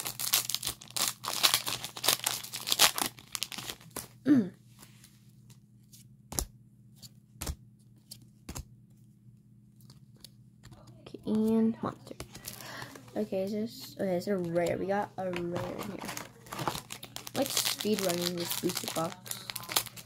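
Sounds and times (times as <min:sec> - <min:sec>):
foil wrapper tearing and crinkling: 0:00.0 - 0:04.1, 0:15.8 - 0:20.0
person humming: 0:04.3 - 0:04.6.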